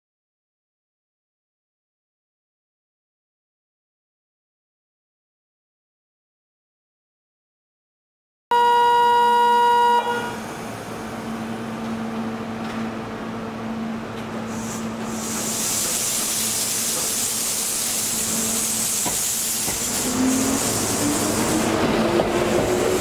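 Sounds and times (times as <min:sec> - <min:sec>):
loud buzzer tone: 0:08.5 - 0:10.4
electric train humming: 0:08.5 - 0:23.0
air brakes hissing: 0:14.4 - 0:21.7.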